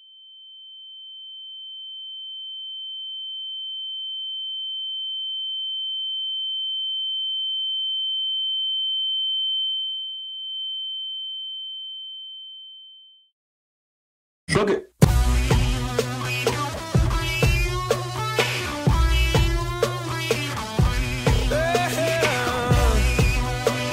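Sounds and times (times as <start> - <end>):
steady high-pitched ringing tone: 0.0 - 12.8.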